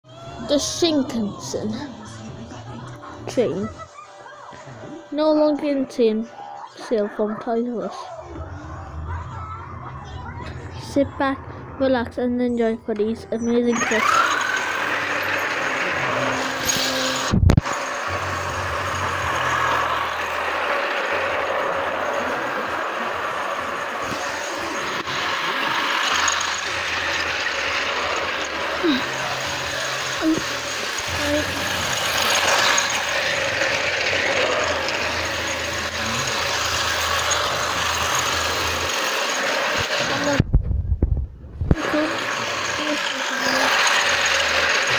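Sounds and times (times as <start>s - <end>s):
toy train motor whirring: 0.1s - 3.8s, 13.4s - 40.4s, 41.7s - 44.9s
toy train wheels rattling: 13.6s - 40.4s, 41.8s - 44.9s
low thump: 40.4s - 41.8s.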